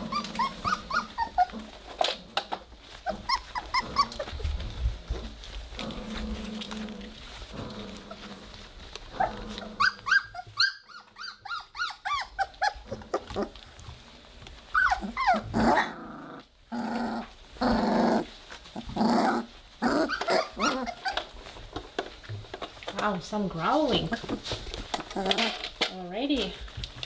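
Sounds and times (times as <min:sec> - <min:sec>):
puppies yipping: 0:00.0 - 0:02.0, 0:02.8 - 0:04.8, 0:06.8 - 0:13.8, 0:14.6 - 0:16.0, 0:17.2 - 0:21.7
puppies growling: 0:00.0 - 0:27.0.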